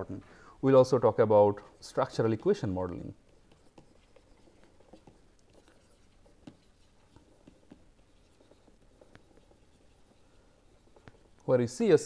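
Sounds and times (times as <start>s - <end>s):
stylus tapping on pen tablet: 3.2s - 10.0s.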